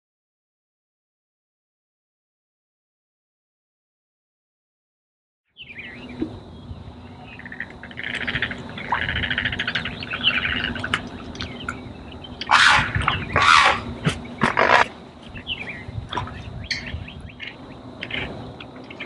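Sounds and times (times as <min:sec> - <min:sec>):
birds chattering trills: 0:05.6 - 0:19.0
bird harsh squawks: 0:07.4 - 0:10.9, 0:12.4 - 0:14.9
bird whistles: 0:12.4 - 0:14.8.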